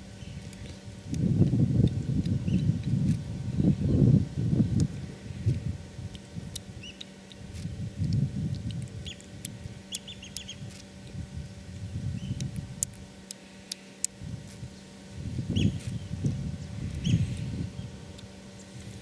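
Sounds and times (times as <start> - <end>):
birds chirping: 0.0 - 0.8, 2.3 - 2.8, 3.4 - 4.2, 6.8 - 7.5, 9.0 - 10.7, 11.8 - 12.6, 14.7 - 18.9
low rumbling noise: 0.0 - 19.0
sharp clicks: 4.8 - 10.9.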